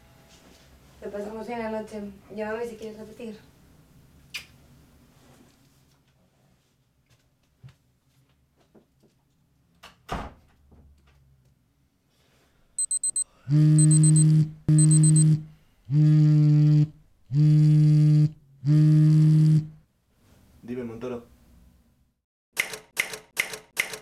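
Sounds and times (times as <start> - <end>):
quick high beeps: 12.8 - 13.2, 13.8 - 15.3
smartphone ringing: 12.8 - 13.2, 13.8 - 15.3.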